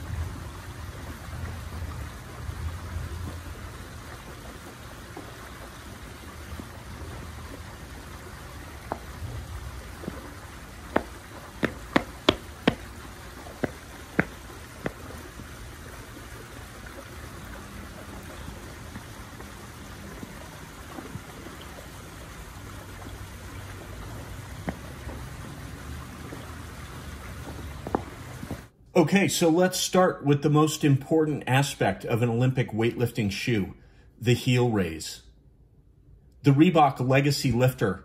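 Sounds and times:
steady low hiss: 0.0s - 38.0s
sharp knocks: 10.9s - 12.9s.

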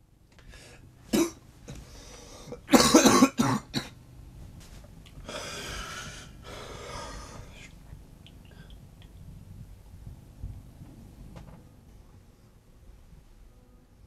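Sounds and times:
heavy breathing: 0.4s - 0.9s, 1.7s - 2.7s, 5.2s - 7.8s
man coughing: 1.1s - 1.4s, 2.7s - 3.9s.

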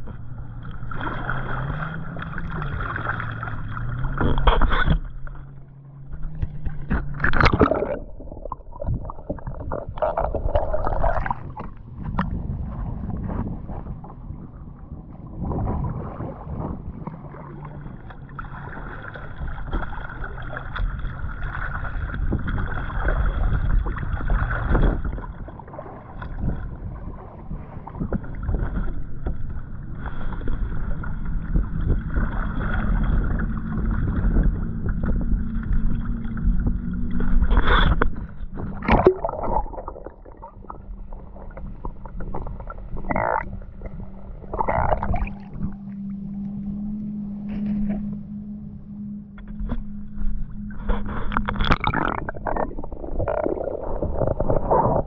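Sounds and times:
water sloshing: 0.0s - 55.0s
paddle splashes against hull: 6.1s - 13.7s, 15.4s - 45.7s.

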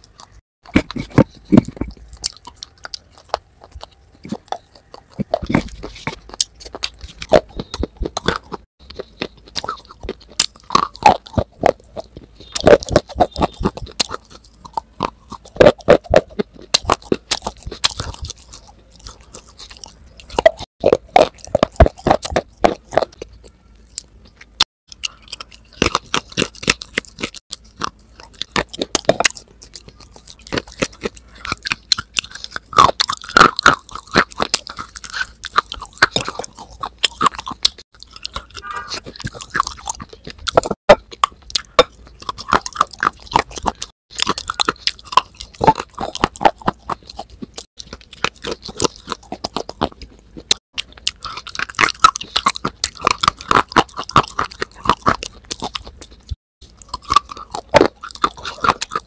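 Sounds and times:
crisp chewing crunches: 0.0s - 59.0s.

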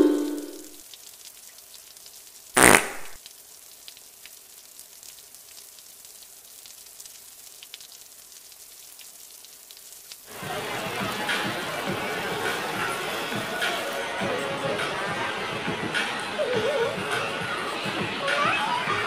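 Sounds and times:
short noisy sound effect: 2.6s - 3.2s.

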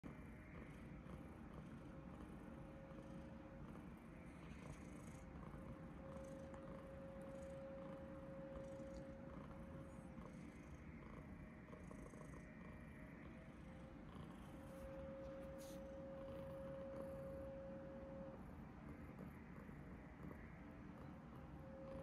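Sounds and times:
cat purring: 0.0s - 22.0s.

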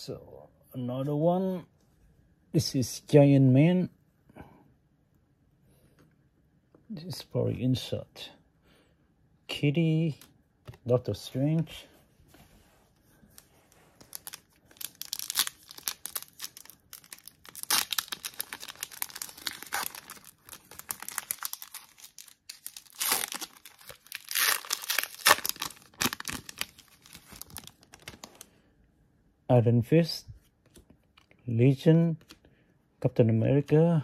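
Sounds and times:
foil wrapper crinkling and tearing: 14.0s - 28.5s.

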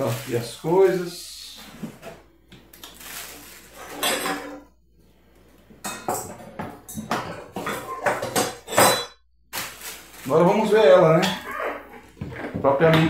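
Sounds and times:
plastic wrapping rustling: 0.0s - 4.4s, 9.5s - 12.2s.

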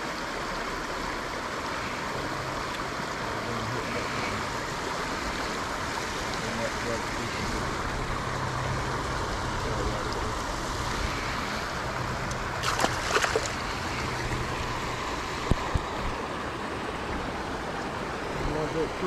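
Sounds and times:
fish splashing into water: 12.2s - 14.1s.

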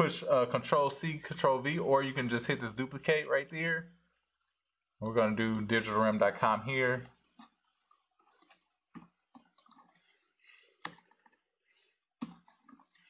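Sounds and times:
computer keyboard typing: 6.7s - 10.1s, 10.8s - 11.4s, 12.2s - 13.0s.

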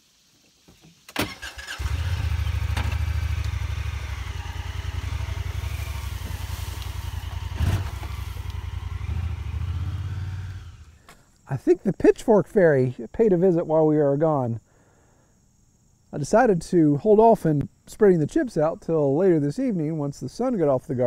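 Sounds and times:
engine starting and running: 1.2s - 11.0s.

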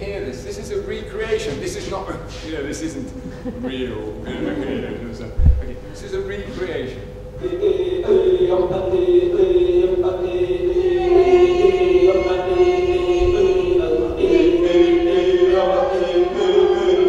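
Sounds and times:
voices chanting on a held note: 7.0s - 17.0s.

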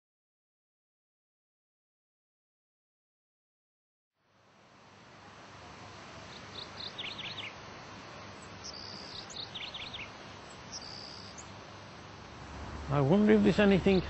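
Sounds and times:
steady background hiss: 4.2s - 14.0s
small birds chirping: 5.9s - 14.0s.

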